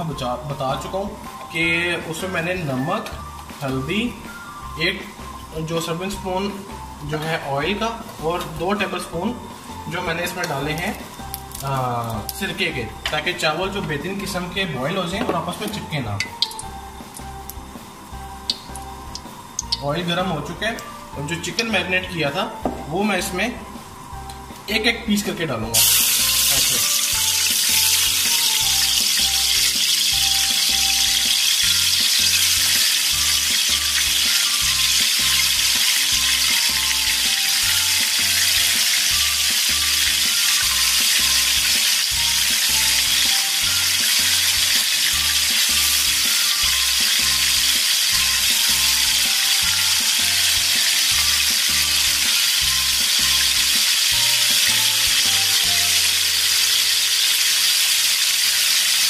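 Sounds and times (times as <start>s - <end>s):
hot oil sizzling: 0.0s - 59.0s
music with a steady beat: 20.6s - 24.7s, 25.8s - 56.3s.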